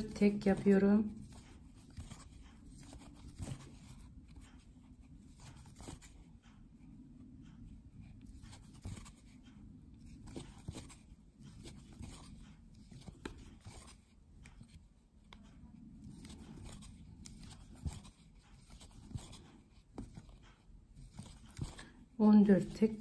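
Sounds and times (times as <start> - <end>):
yarn rustling: 0.0 - 6.6, 15.4 - 23.0
low background noise: 0.0 - 23.0.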